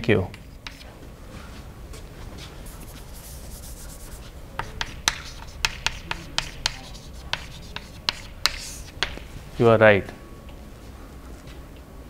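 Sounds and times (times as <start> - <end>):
chalk tapping on blackboard: 0.3 - 0.9, 2.7 - 9.3
chalk scraping on blackboard: 0.4 - 0.9, 2.4 - 9.2.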